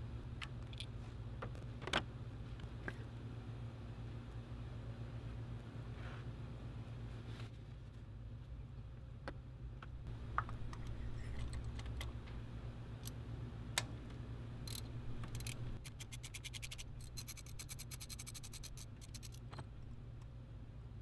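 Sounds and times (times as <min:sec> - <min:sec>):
socket ratchet clicking: 0:14.6 - 0:19.6.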